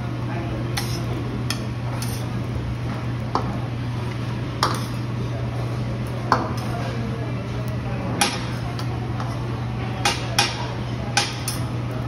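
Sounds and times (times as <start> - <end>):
metal spatulas scraping on griddle: 0.8 - 2.4, 4.6 - 5.1.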